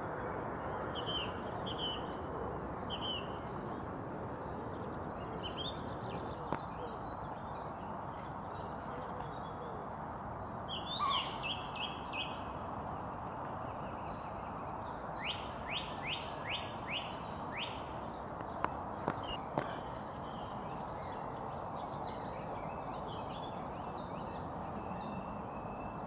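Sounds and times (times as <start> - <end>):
songbirds singing: 0.0 - 26.0.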